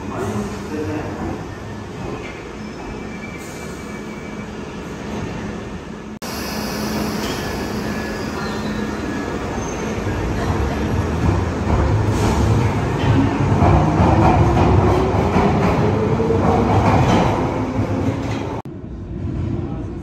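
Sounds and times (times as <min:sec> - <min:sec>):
subway train rumbling: 0:00.0 - 0:20.0
high wheel squeals: 0:06.3 - 0:10.2.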